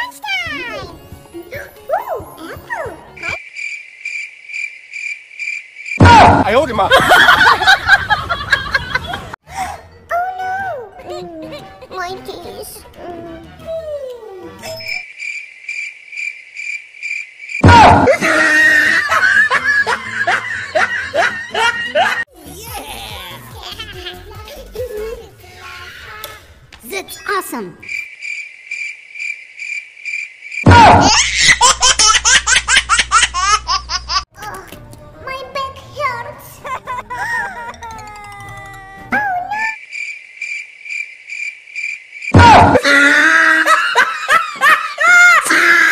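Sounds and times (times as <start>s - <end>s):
cricket chirping: 2.5s - 6.0s, 14.6s - 17.6s, 27.1s - 30.7s, 36.8s - 42.4s.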